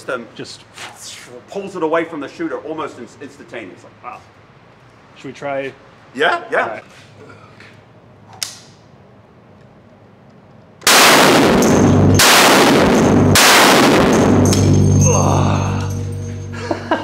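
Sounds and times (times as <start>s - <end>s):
rifle shots reverberating indoors: 10.8s - 15.1s.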